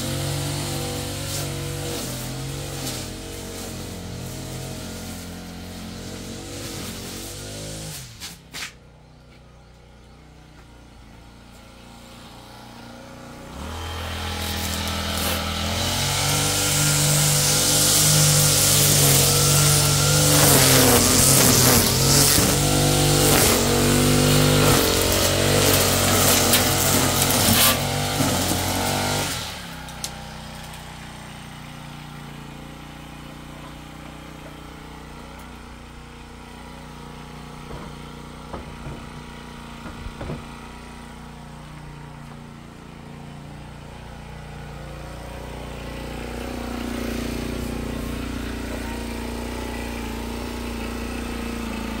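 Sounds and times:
engine running: 0.0s - 52.0s.

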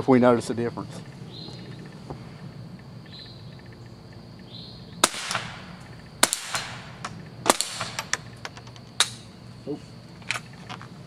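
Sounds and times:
rifle shots: 5.0s - 8.3s.

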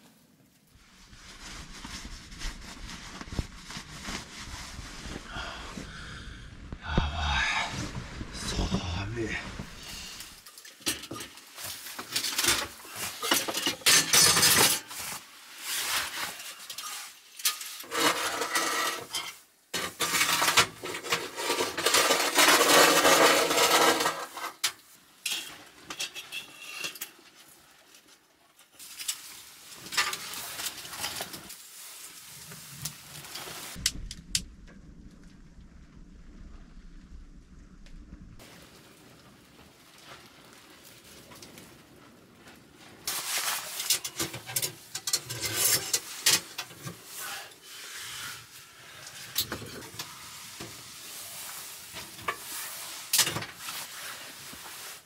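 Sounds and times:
metal clattering and scraping: 9.5s - 27.2s, 43.1s - 47.2s.

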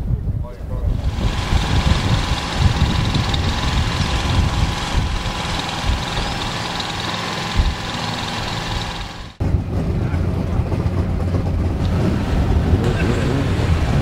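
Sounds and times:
car engine idling: 0.9s - 9.4s.

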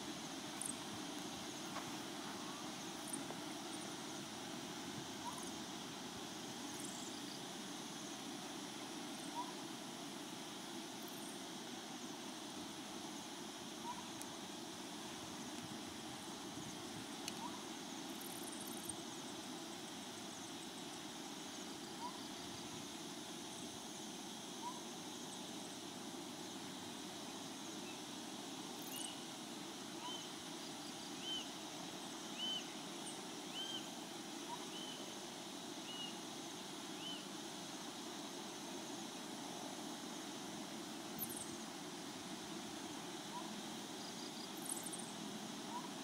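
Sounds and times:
outdoor evening ambience: 0.0s - 46.0s
bird calling: 5.2s - 5.5s, 13.8s - 14.1s, 45.7s - 46.0s.

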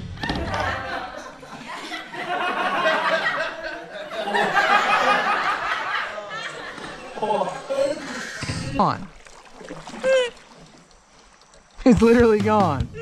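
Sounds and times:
man laughing: 0.3s - 8.3s.

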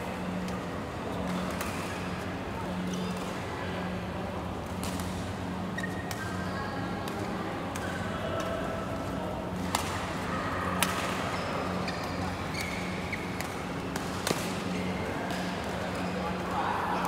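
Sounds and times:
shoes squeaking on court floor: 5.6s - 6.6s, 11.3s - 13.5s
rackets hitting shuttlecock: 9.6s - 10.0s, 10.8s - 11.3s, 12.6s - 15.6s.

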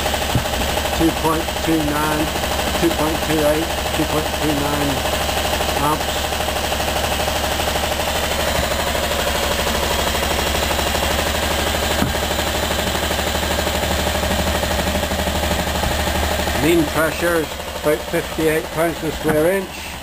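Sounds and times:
engine mechanical clatter: 0.0s - 20.0s
low hum: 7.4s - 20.0s.

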